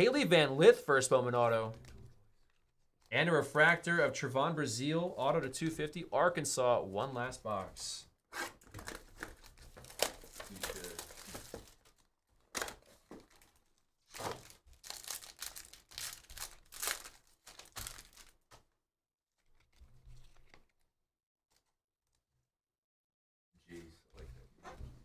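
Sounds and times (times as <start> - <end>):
cards handled: 8.4 - 11.9
wrapper tearing and crinkling: 8.8 - 18.5.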